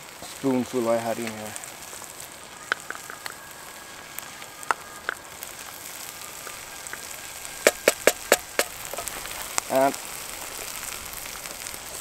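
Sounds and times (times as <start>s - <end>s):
sauce sizzling in a frying pan: 0.0s - 12.0s
sharp taps: 7.6s - 8.8s.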